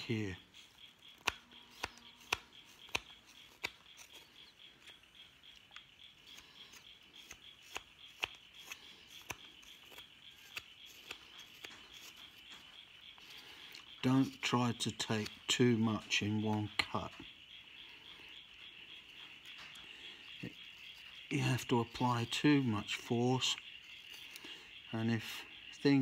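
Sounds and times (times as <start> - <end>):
knife cutting wood clicks: 0.6 - 15.8.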